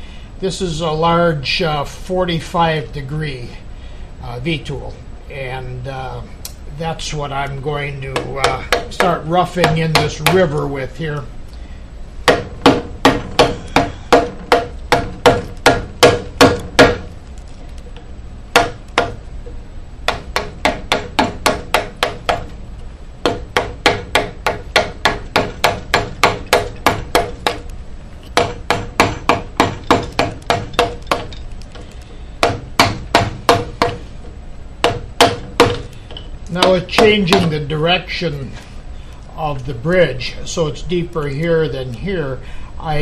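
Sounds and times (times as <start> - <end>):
mallet knocking on chisel: 8.1 - 10.6, 12.2 - 17.1, 18.5 - 19.2, 20.1 - 22.6, 23.2 - 27.7, 28.4 - 37.5.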